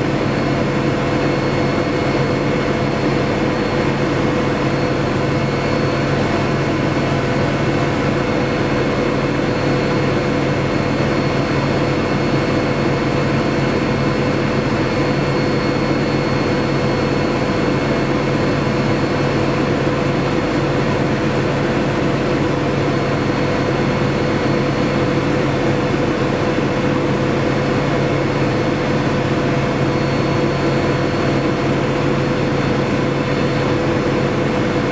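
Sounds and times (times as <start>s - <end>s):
helicopter engine and rotor drone: 0.0s - 34.9s.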